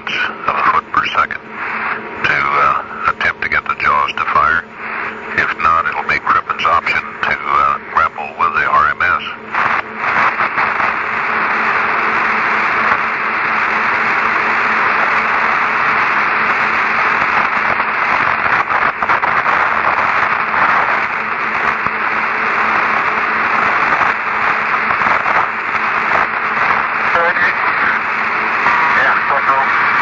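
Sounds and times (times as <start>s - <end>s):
radio static hiss: 0.0s - 30.0s.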